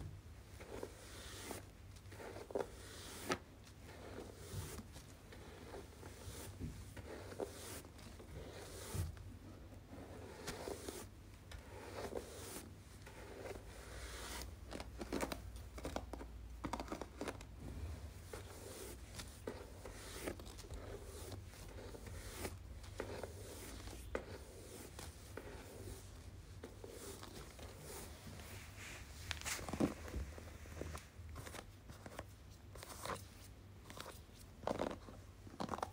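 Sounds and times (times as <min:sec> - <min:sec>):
hairbrush scratching microphone: 0:05.3 - 0:09.1.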